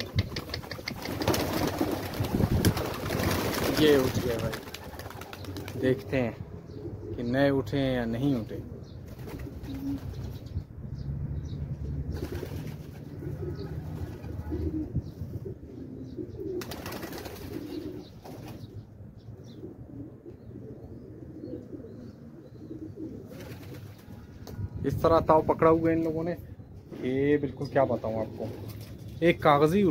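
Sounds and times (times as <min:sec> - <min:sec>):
pigeons cooing: 0:00.0 - 0:10.5, 0:12.1 - 0:24.8.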